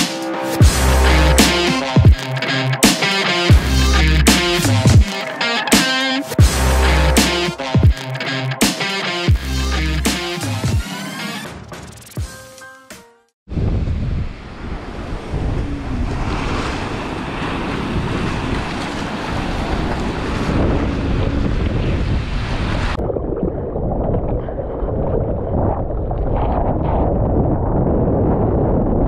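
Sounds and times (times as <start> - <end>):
ocean water rushing: 0.0 - 6.9, 14.2 - 25.0
wind on microphone: 13.5 - 29.0.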